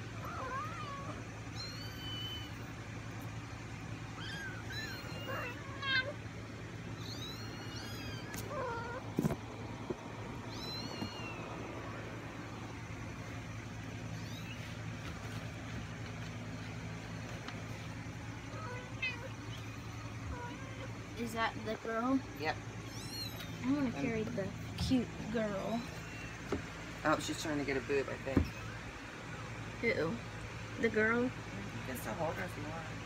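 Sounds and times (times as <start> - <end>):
kittens mewing: 0.0 - 2.9, 4.0 - 12.2, 18.4 - 21.2, 22.2 - 24.2, 25.6 - 27.0.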